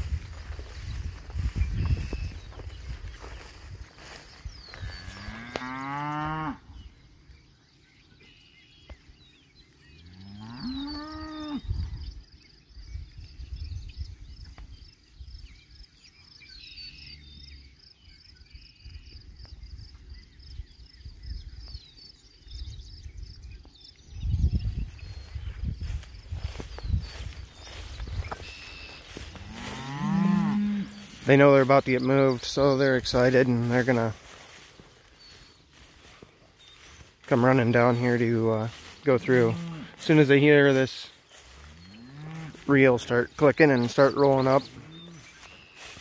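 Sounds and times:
cattle mooing: 0:29.5 - 0:31.0.

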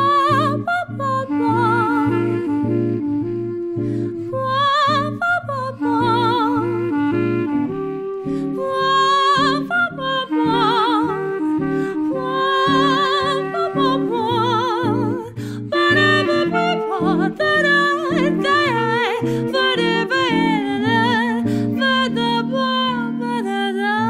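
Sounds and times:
clarinet: 0:00.0 - 0:24.0
jazz guitar rhythm chords: 0:00.0 - 0:24.0
woman singing with vibrato: 0:00.0 - 0:24.0.

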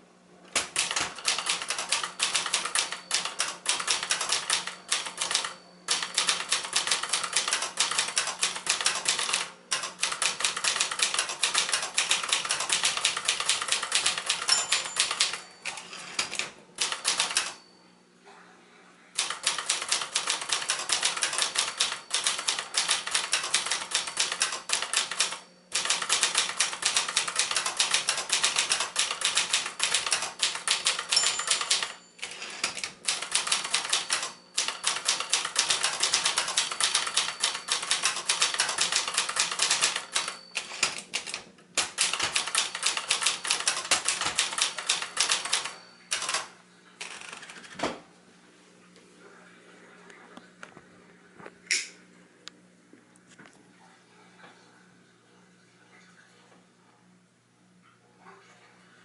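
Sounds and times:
typewriter keystrokes: 0:00.5 - 0:17.6, 0:19.2 - 0:47.8.

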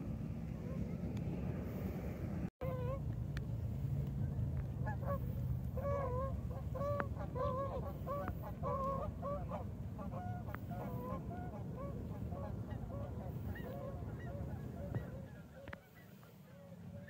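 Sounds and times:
steady low rumble: 0:00.0 - 0:15.6
geese honking: 0:02.6 - 0:03.0, 0:04.8 - 0:17.0.

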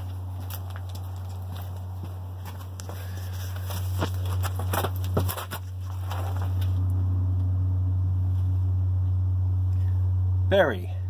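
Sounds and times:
rustling: 0:00.0 - 0:07.0
low-pitched hum: 0:00.0 - 0:11.0.

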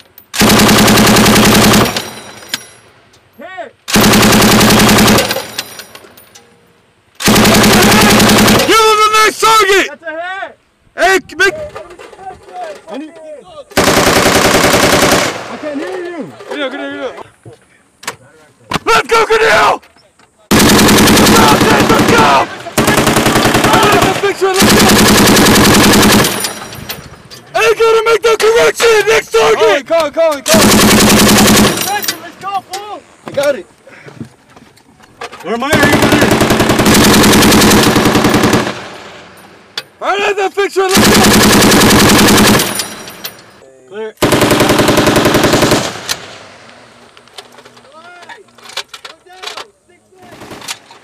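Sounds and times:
machine gun automatic fire: 0:00.3 - 0:02.2, 0:03.9 - 0:05.7, 0:07.2 - 0:08.9, 0:13.8 - 0:15.7, 0:20.5 - 0:26.7, 0:30.5 - 0:32.2, 0:35.6 - 0:39.4, 0:40.9 - 0:43.6, 0:44.2 - 0:46.6, 0:50.2 - 0:50.9.

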